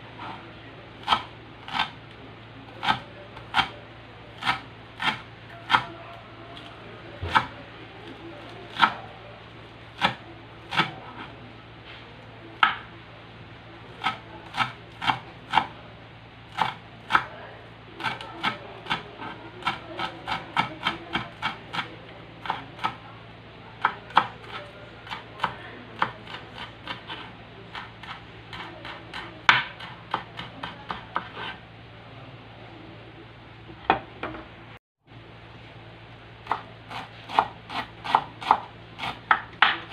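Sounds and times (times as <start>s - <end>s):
knife chopping on wooden board: 1.0s - 2.0s, 2.8s - 3.8s, 4.4s - 5.9s, 7.2s - 7.6s, 8.7s - 9.0s, 10.0s - 11.3s, 12.6s - 12.8s, 14.0s - 15.7s, 16.5s - 17.3s, 18.0s - 23.0s, 23.8s - 31.6s, 36.4s - 39.9s.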